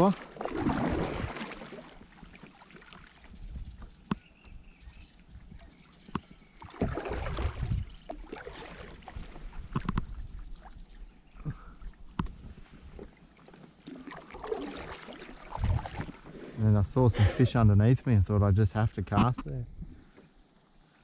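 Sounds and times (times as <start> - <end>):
water splashing around kayak: 0.0 - 16.7.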